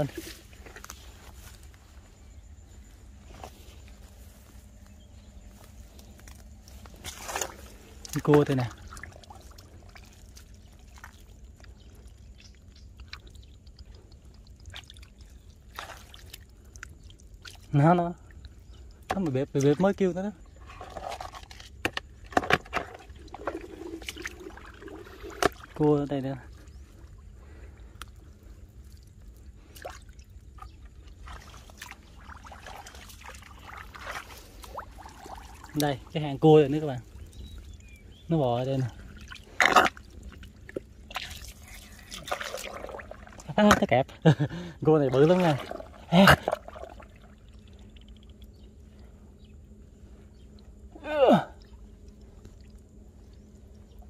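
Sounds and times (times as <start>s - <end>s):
wet clicks and drips in mud: 5.6s - 49.1s, 51.6s - 54.0s
small ticks: 8.9s - 19.2s, 27.8s - 31.2s.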